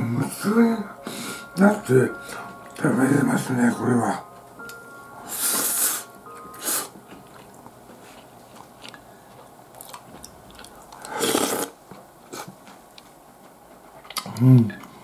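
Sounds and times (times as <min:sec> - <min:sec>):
quiet chewing with clicks: 0:07.0 - 0:15.0.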